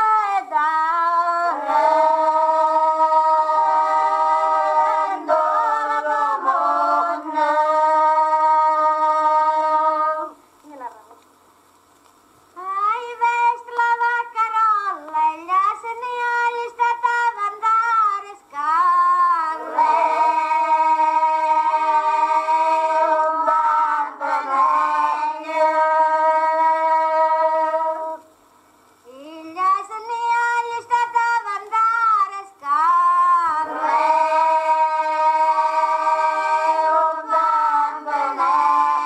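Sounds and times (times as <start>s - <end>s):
woman singing folk song: 0.0s - 1.7s, 12.6s - 22.0s, 29.0s - 35.2s.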